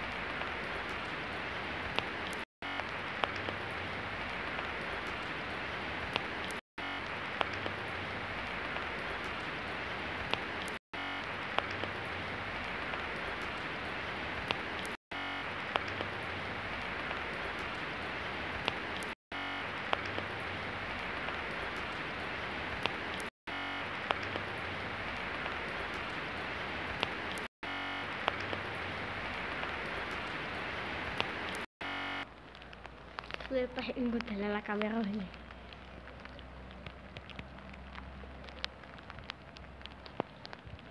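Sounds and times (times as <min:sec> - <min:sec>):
raindrops ticking: 0:00.0 - 0:40.9
steady rain hiss: 0:00.0 - 0:40.9.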